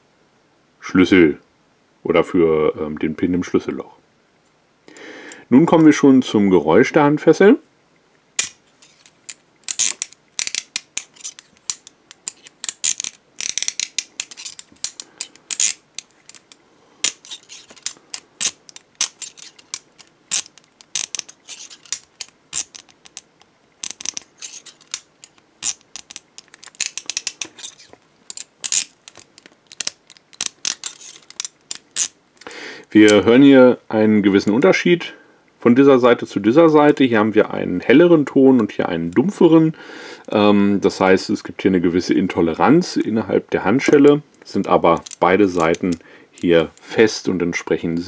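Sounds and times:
handcuff lock ratcheting clicks: 8.4s - 32.1s, 45.0s - 46.9s.

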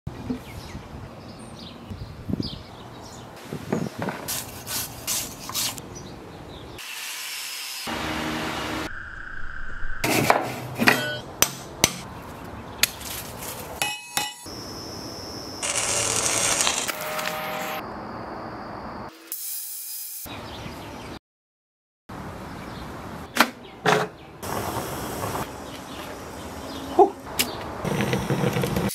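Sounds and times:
welding arc crackling: 15.6s - 17.8s.

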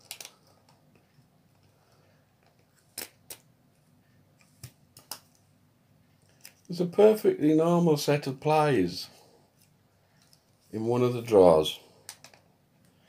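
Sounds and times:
small object clicks and taps: 12.1s - 12.4s.

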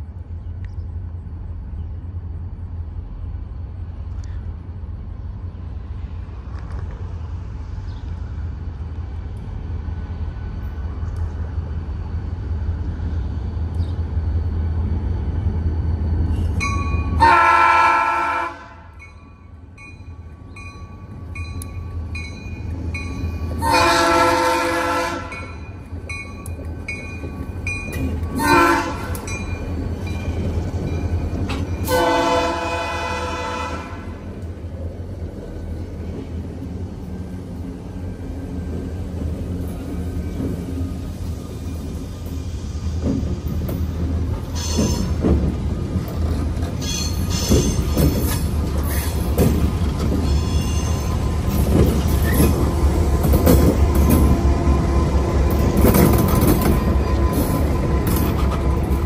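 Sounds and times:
diesel locomotive engines rumbling: 0.0s - 59.0s
locomotive air horn blasts: 17.2s - 19.0s, 23.6s - 25.5s, 28.4s - 29.2s, 31.8s - 34.2s.

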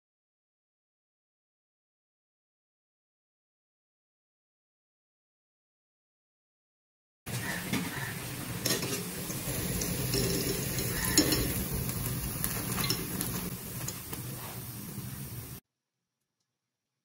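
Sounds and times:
oil sizzling: 7.3s - 15.6s
skimmer clinking against pan: 8.6s - 14.1s.

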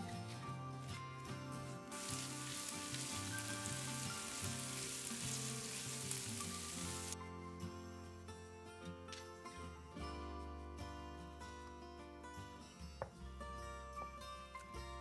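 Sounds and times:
background music: 0.0s - 15.0s
vegetables sizzling in a pan: 1.9s - 7.2s.

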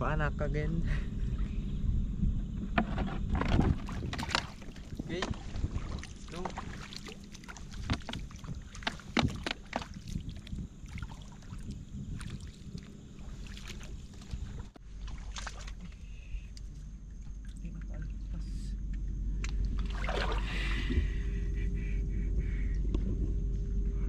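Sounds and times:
steady low rumble: 0.0s - 24.0s
water splashing from wading: 3.7s - 18.5s, 19.5s - 21.3s.

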